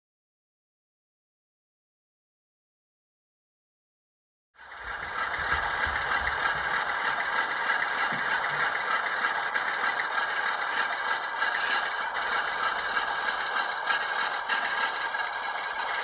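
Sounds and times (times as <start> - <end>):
model diesel engine sound through small speaker: 4.6 - 16.0.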